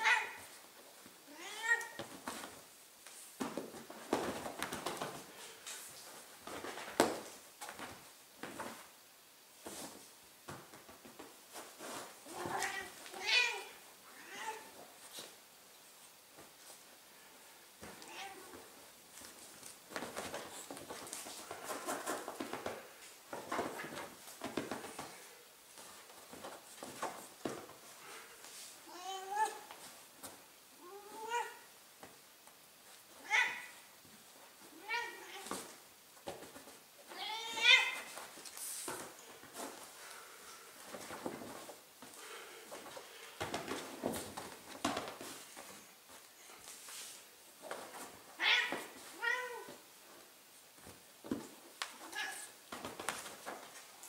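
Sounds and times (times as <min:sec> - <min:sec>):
cat meowing: 0:00.0 - 0:00.5, 0:12.3 - 0:14.7, 0:48.4 - 0:49.7.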